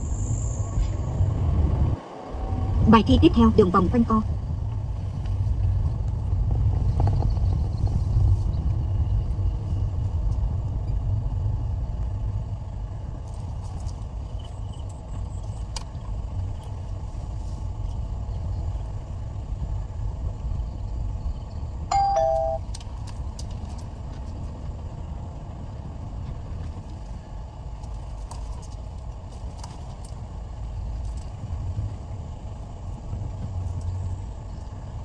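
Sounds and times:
car engine and tyre rumble: 0.0s - 35.0s
two-note electronic chime: 21.9s - 22.6s.

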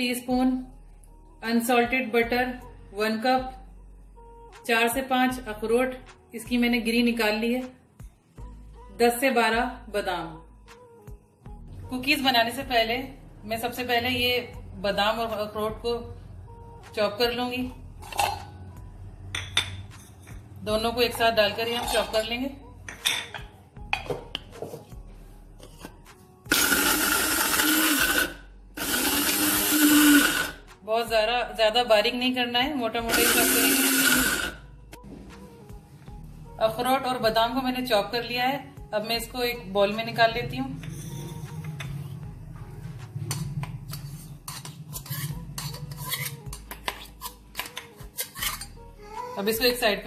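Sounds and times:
metal jar and spoon scraping bowl: 18.0s - 18.6s, 19.3s - 20.5s, 21.1s - 23.5s, 25.6s - 30.6s, 33.1s - 34.5s, 40.8s - 42.1s, 43.2s - 48.8s.

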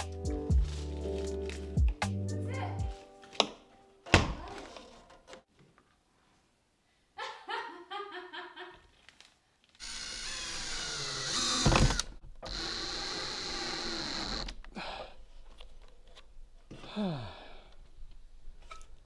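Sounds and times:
cordless drill whining: 9.8s - 14.7s.

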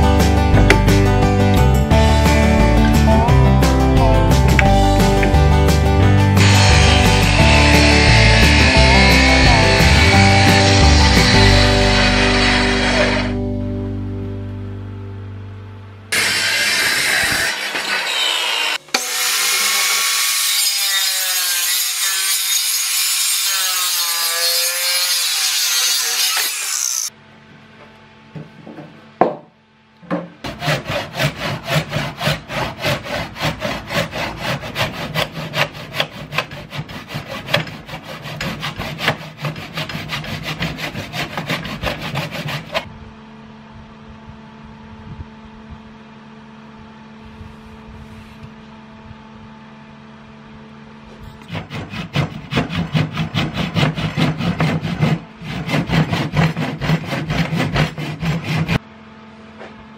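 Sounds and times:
steady hum: 0.3s - 16.9s
hand saw cutting wood: 4.5s - 13.4s, 16.1s - 27.1s, 30.4s - 42.9s, 51.4s - 58.8s.

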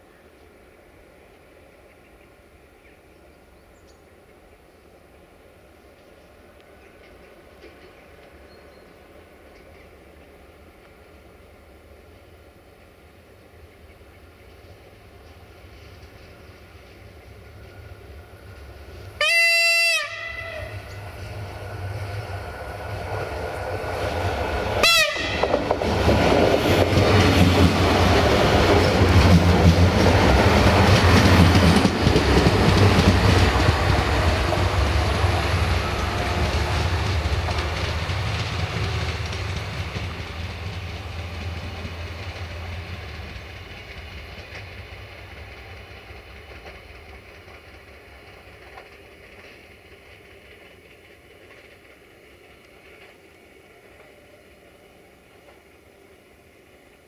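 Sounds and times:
train horn blast: 19.2s - 21.0s, 24.8s - 25.6s
wheels on rails: 20.3s - 55.8s.

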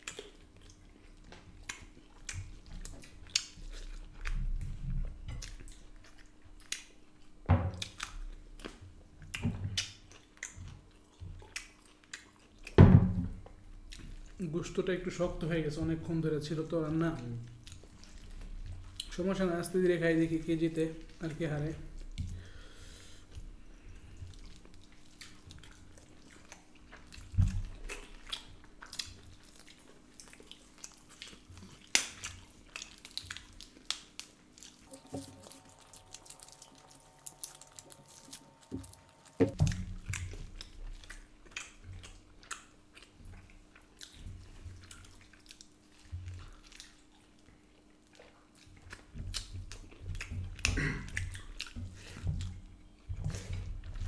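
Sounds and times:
chewing and biting meat: 0.0s - 12.8s, 17.4s - 19.2s, 23.2s - 54.0s.

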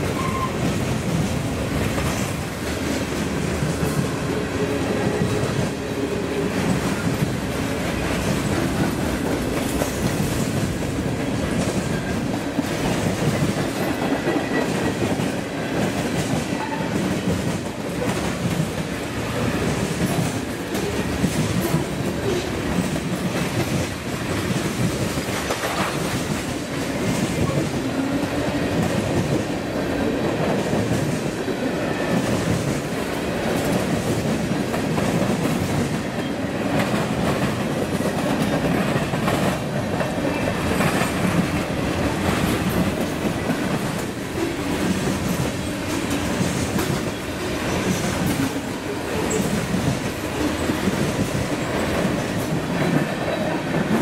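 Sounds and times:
train wheels clattering on rails: 0.0s - 54.0s.

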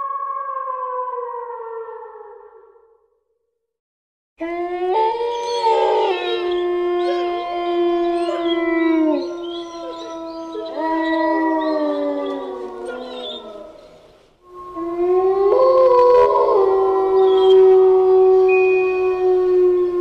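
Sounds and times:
canines howling together: 4.4s - 20.0s.

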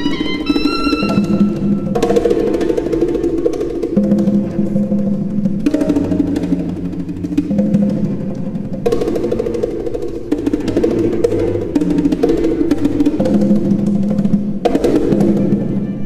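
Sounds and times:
low cello notes: 0.0s - 2.2s
bongos played with hands: 0.0s - 16.0s.

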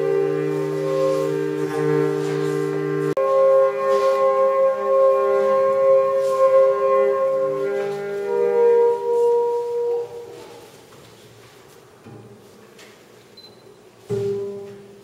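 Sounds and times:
violin long bowed notes: 0.0s - 10.6s.

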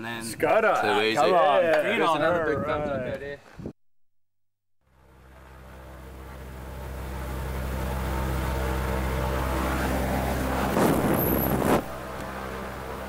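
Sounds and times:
light aircraft engine drone: 4.9s - 13.0s
loud rushing noise: 7.7s - 13.0s.

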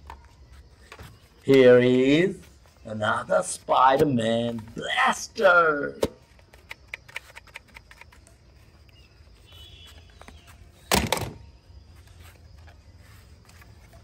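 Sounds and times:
plastic toys clicking and rattling: 6.4s - 8.2s.

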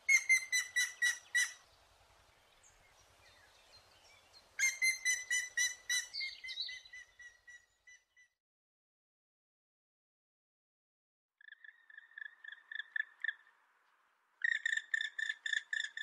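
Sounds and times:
woodpecker calling: 0.0s - 1.6s, 4.6s - 8.0s, 14.4s - 16.0s.

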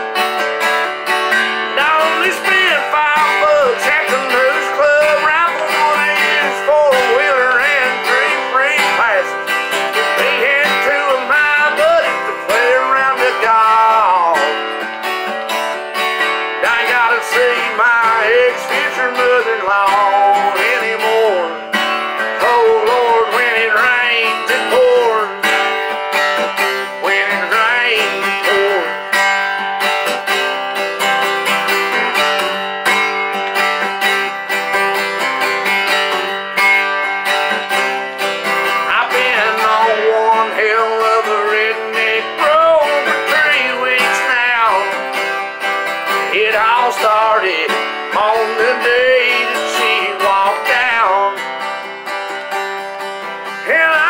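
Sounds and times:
acoustic guitar strumming: 0.0s - 54.0s
man singing: 1.3s - 29.6s, 37.6s - 51.9s, 53.4s - 54.0s.

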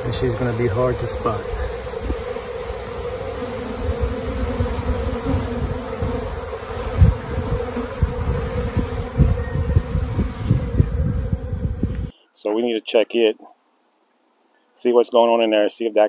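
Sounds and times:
honey bees buzzing: 0.0s - 12.1s
low thumps: 3.8s - 12.1s.

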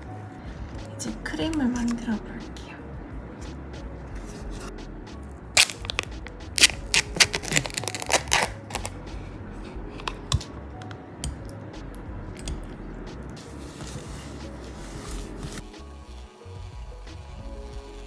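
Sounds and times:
soft background music: 0.0s - 18.0s.

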